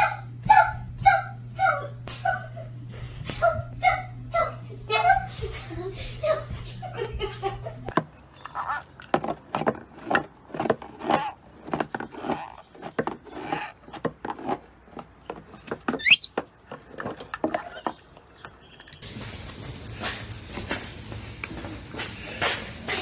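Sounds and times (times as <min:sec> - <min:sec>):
fast rising whistle: 0:16.0 - 0:16.3
parrot chattering calls: 0:16.0 - 0:16.4.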